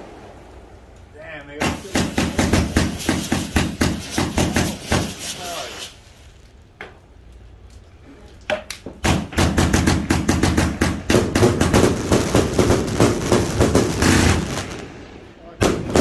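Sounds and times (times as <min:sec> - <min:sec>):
single firework pops: 0:01.6 - 0:05.4
firework cake shots and bursts: 0:01.6 - 0:06.3, 0:09.0 - 0:16.0.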